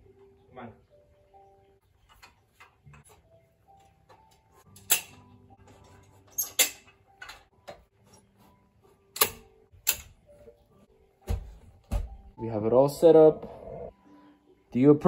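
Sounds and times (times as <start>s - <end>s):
metal tubes clacking: 4.6s - 8.2s.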